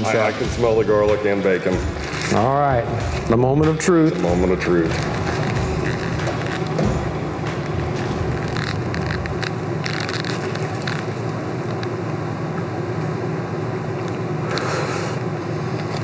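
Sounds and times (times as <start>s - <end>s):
ventilation hum: 0.0s - 16.0s
foil wrappers crinkling: 1.4s - 12.0s.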